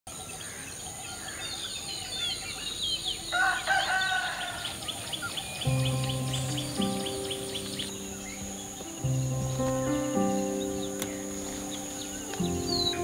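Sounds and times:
small birds chirping: 0.1 - 13.0
rooster crowing: 3.3 - 5.0.

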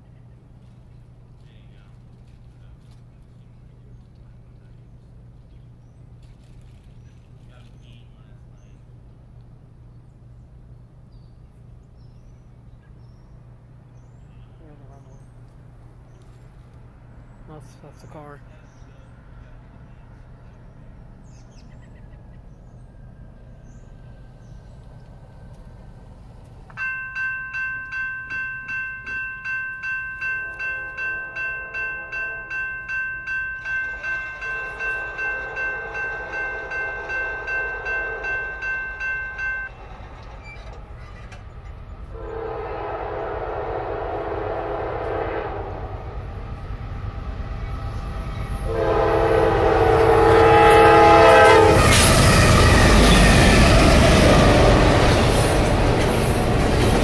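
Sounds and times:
rumble and clatter of passing train: 0.0 - 57.0
crossing warning bell ringing: 26.8 - 40.9, 48.4 - 57.0
train horn blasts: 30.2 - 33.0, 33.6 - 39.7, 42.1 - 46.4, 48.6 - 55.0.

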